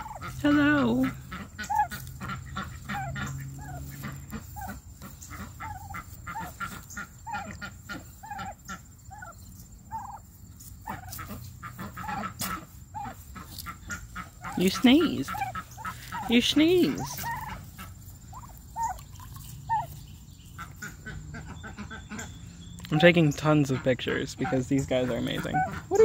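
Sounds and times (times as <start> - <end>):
turkeys chirping softly: 0.0 - 26.0.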